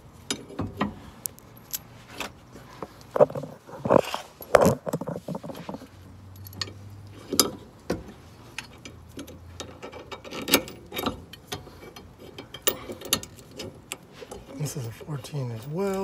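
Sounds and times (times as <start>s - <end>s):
metallic clinks of tools and bolts: 12.3s - 13.7s.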